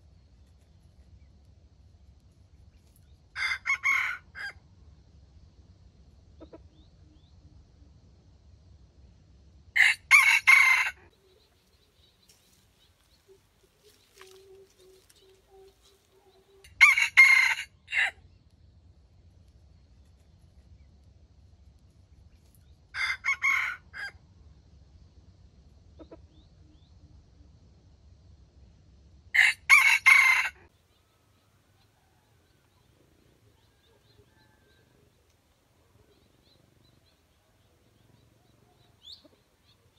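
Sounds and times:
rooster crowing: 3.4s - 4.6s, 9.8s - 11.1s, 15.5s - 18.2s, 22.9s - 24.2s, 29.4s - 32.8s, 33.6s - 35.2s.

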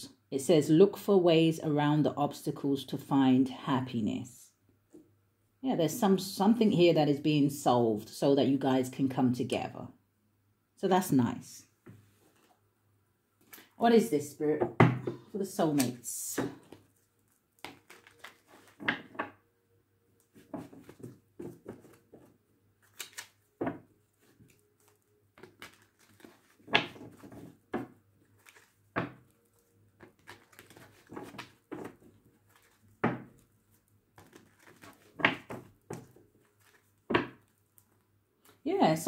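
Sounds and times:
cards being shuffled: 15.7s - 19.4s, 20.2s - 38.0s.

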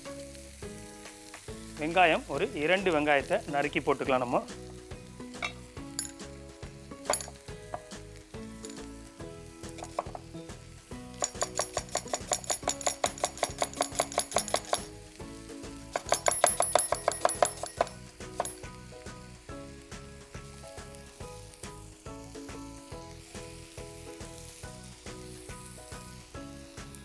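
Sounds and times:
knife chopping onion on wood: 11.3s - 14.9s.

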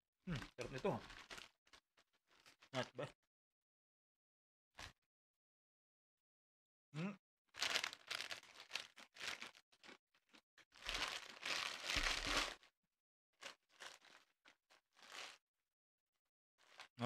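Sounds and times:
foil bag crinkling: 0.3s - 2.9s, 7.6s - 12.7s, 13.4s - 15.4s, 16.6s - 16.9s.

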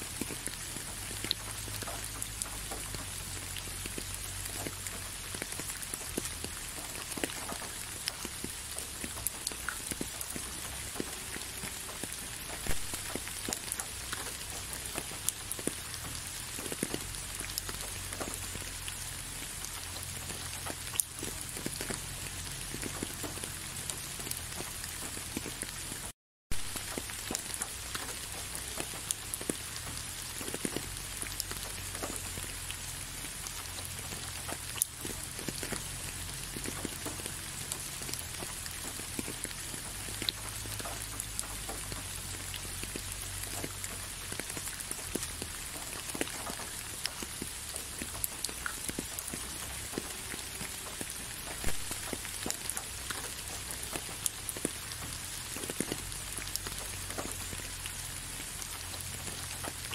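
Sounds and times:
steady rain: 0.0s - 59.9s.

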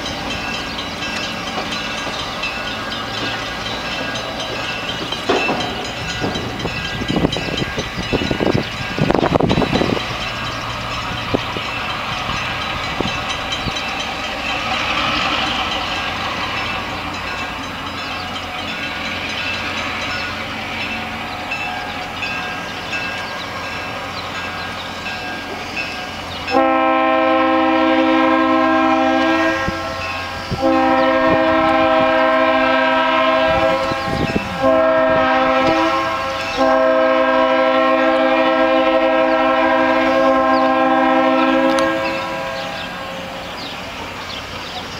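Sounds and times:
train engine and rail noise: 0.0s - 44.9s
train horn blasts: 26.5s - 43.5s.

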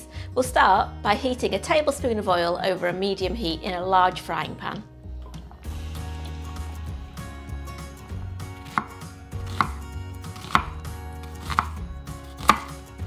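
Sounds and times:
knife chopping on wooden board: 8.6s - 12.9s.

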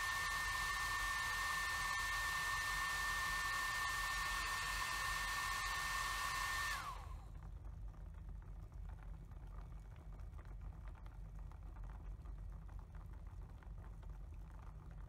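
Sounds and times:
hair dryer running: 0.0s - 7.2s.

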